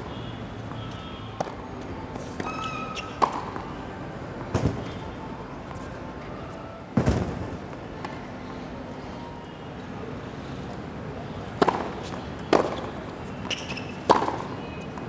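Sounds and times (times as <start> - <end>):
low background noise: 0.0 - 15.0
tennis ball racket hits: 11.6 - 14.6.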